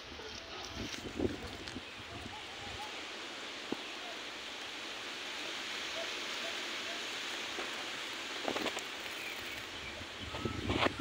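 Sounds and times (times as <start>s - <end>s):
rain falling: 0.0s - 10.4s
brief rustle: 8.4s - 9.7s.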